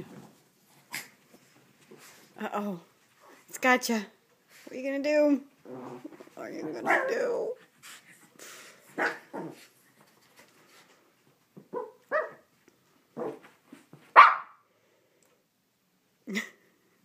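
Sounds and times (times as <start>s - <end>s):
small dog barking: 6.8s - 7.2s, 9.0s - 9.6s, 11.7s - 12.5s, 14.1s - 14.6s.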